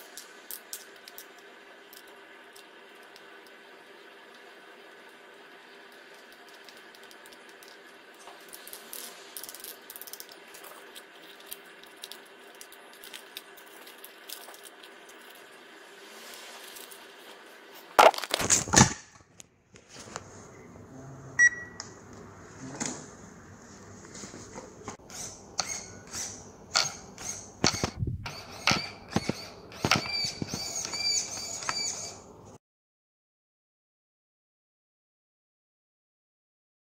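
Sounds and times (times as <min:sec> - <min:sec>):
toy truck electric whine: 0:25.0 - 0:32.3.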